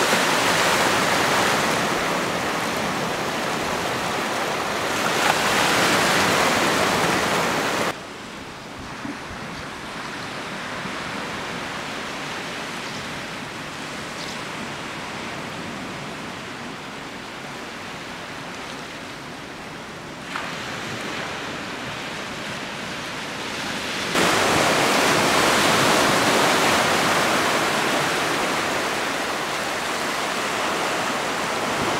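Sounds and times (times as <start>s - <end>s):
sea rushing below a cliff: 0.0s - 8.0s, 20.2s - 31.9s.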